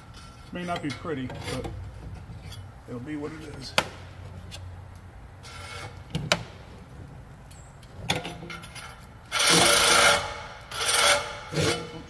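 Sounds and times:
reciprocating saw cutting metal pipe: 9.3s - 12.0s.

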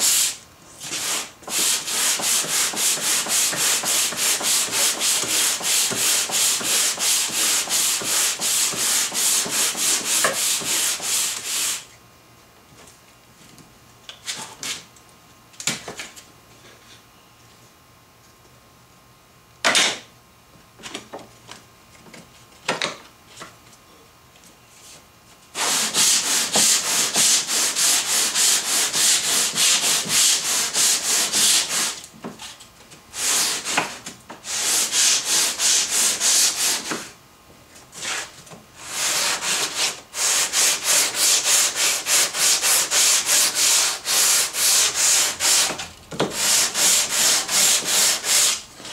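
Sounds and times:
sandpaper sanding wooden board: 0.0s - 11.9s, 25.6s - 32.0s, 33.2s - 37.2s, 38.0s - 48.9s.

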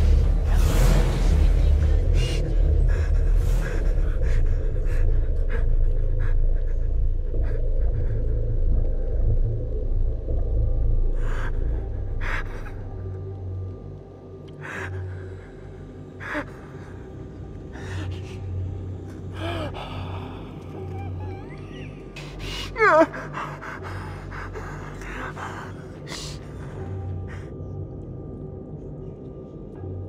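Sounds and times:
deep low rumbling drone: 0.0s - 30.0s
person gasping breaths: 16.2s - 21.5s.

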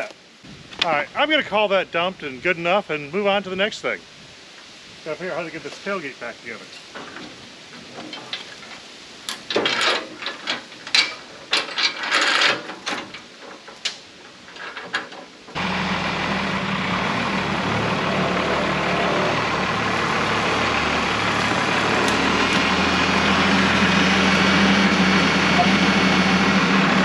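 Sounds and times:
metal tailgate clanks: 6.9s - 15.3s
diesel truck idling: 15.5s - 27.0s.

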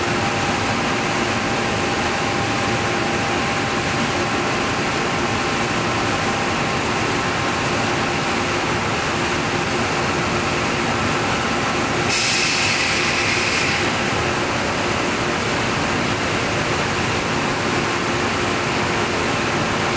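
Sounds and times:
loud hiss: 12.1s - 14.1s.

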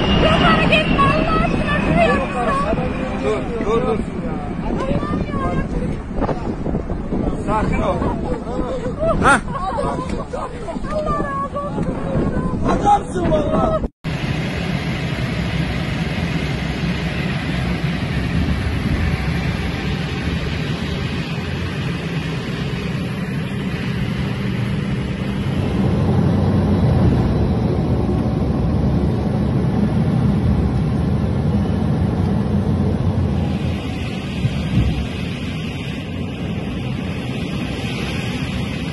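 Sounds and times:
aircraft engines droning: 0.0s - 12.6s, 14.0s - 38.9s.

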